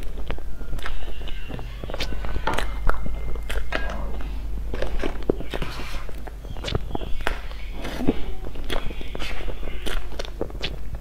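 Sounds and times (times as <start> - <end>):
person chewing cake: 0.0 - 11.0
steady low hum: 0.0 - 11.0.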